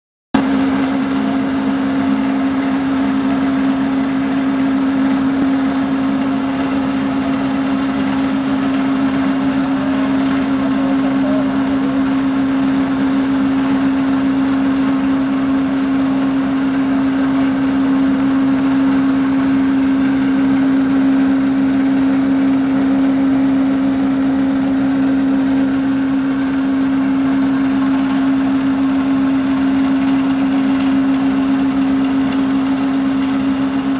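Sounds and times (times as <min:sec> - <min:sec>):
machine drone with low hum: 0:00.4 - 0:33.9.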